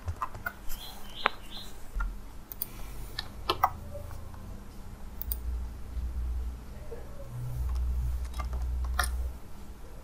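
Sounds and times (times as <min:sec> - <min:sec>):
keyboard and mouse clicks: 0:00.0 - 0:01.4, 0:02.0 - 0:04.4, 0:05.2 - 0:05.4, 0:07.6 - 0:09.2
low steady hum: 0:00.0 - 0:10.0.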